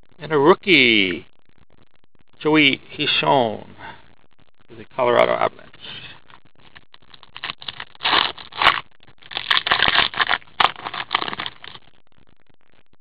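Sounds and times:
cards rustling and scraping: 0:07.1 - 0:11.8.

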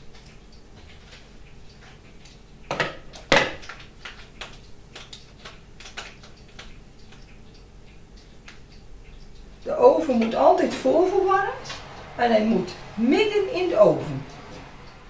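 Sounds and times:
faint ticks and clicks: 0:00.0 - 0:10.8.

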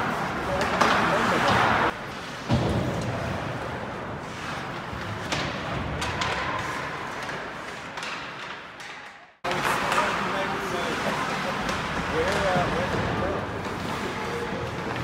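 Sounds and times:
hockey sticks and puck clacking: 0:00.0 - 0:15.0.

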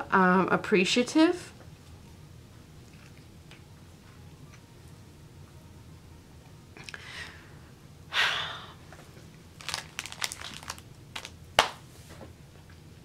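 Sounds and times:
plastic bags crinkling: 0:09.6 - 0:11.4.

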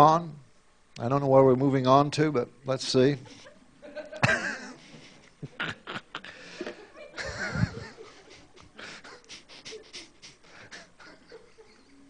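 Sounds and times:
man laughing breathily: 0:04.2 - 0:12.0.

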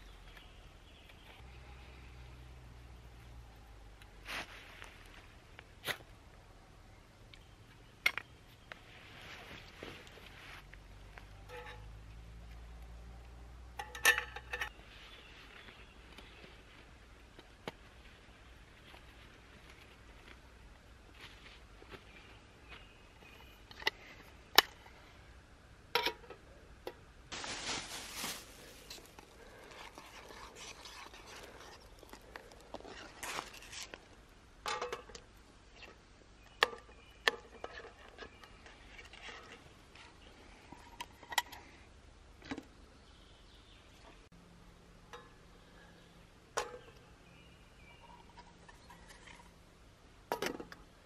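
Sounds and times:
plastic packaging crinkling: 0:27.3 - 0:33.8.

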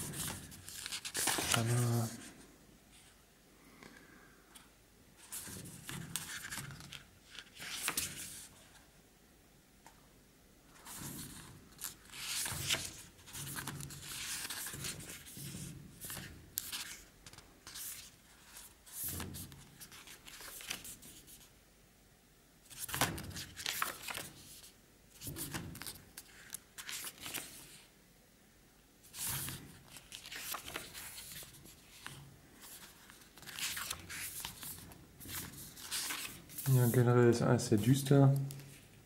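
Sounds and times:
book pages turning: 0:00.0 - 0:02.3, 0:05.2 - 0:08.8, 0:10.8 - 0:21.5, 0:22.7 - 0:27.8, 0:29.0 - 0:37.1.

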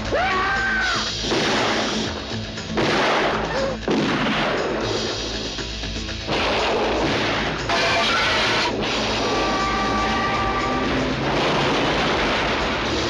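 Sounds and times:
trailer music: 0:00.0 - 0:13.0
booms and crashes: 0:01.1 - 0:05.2, 0:06.2 - 0:13.0
dense rumble: 0:08.6 - 0:13.0.

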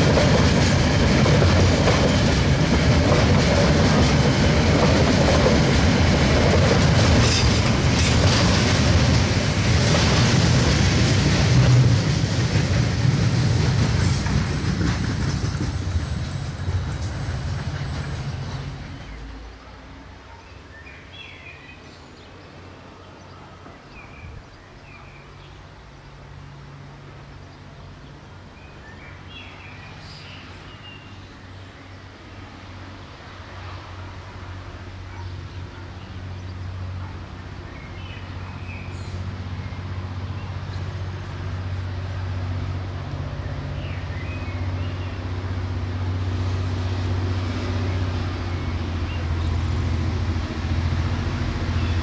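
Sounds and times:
train wheels clattering on rails: 0:00.0 - 0:19.4.

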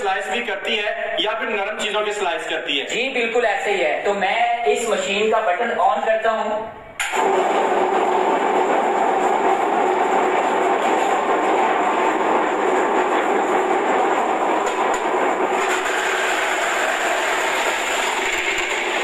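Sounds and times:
slicing machine running: 0:07.0 - 0:19.0.

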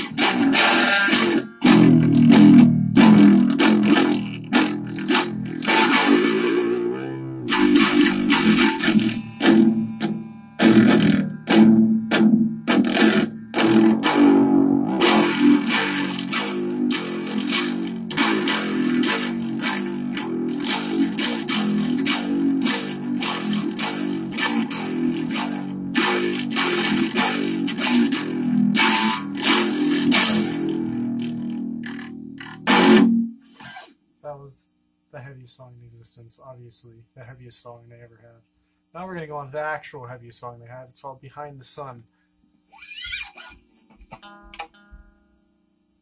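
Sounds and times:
distorted electric guitar riffs: 0:00.0 - 0:33.9, 0:42.9 - 0:45.7.

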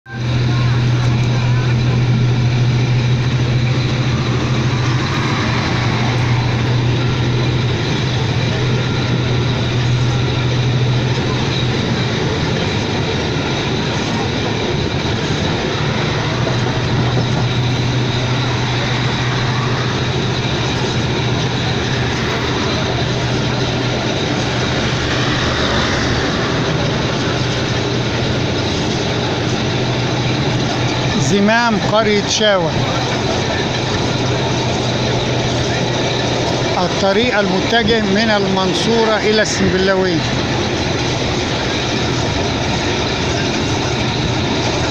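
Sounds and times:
train running noise: 0:00.0 - 0:44.9
low hum: 0:00.1 - 0:44.9.

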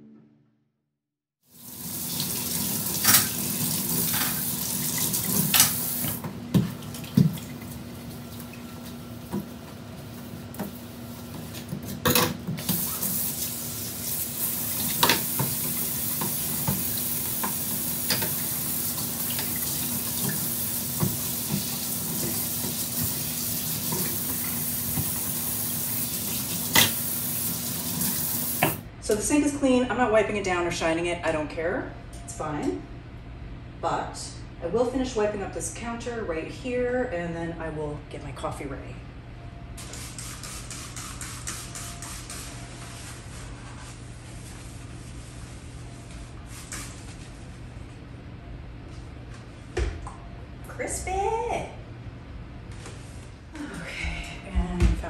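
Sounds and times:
faucet water running into sink: 0:01.5 - 0:09.5, 0:12.5 - 0:28.8.

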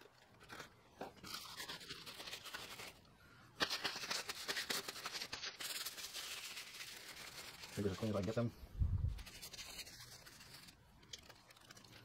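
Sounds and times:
plastic bags rustling and crinkling: 0:04.9 - 0:12.0.

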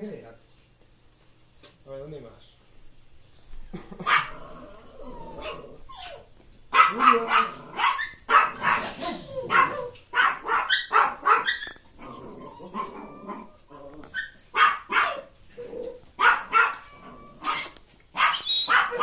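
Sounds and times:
dog barking: 0:04.0 - 0:04.4, 0:06.7 - 0:11.8, 0:14.2 - 0:15.3, 0:16.2 - 0:19.0.

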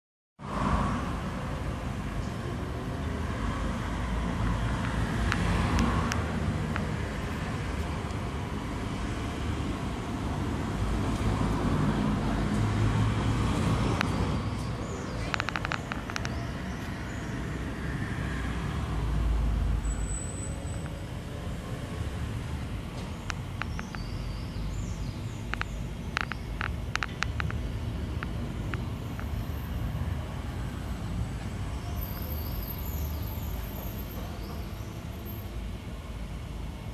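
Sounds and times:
sharp clicks: 0:04.8 - 0:06.9, 0:15.2 - 0:16.4, 0:23.0 - 0:24.2, 0:25.4 - 0:29.4.

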